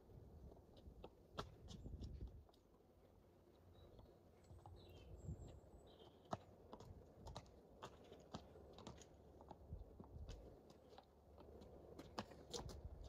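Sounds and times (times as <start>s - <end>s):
wind rumble on microphone: 0.0s - 2.5s, 4.8s - 6.0s, 9.6s - 10.6s, 12.5s - 13.0s
horse hooves on tarmac: 0.0s - 13.0s.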